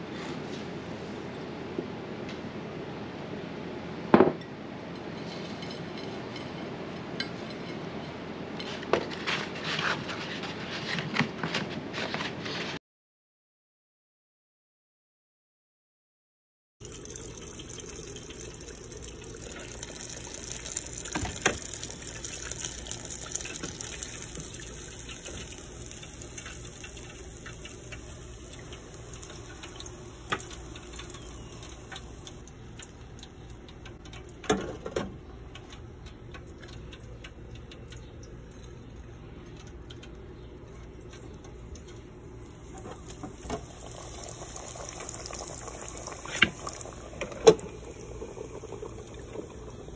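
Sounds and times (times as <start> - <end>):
oil sizzling and bubbling: 16.8 - 49.9.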